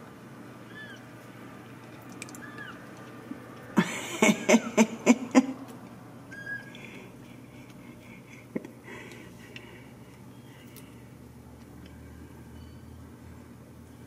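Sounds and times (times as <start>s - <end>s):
kittens mewing: 0.6s - 1.1s, 2.2s - 2.9s, 6.3s - 7.1s.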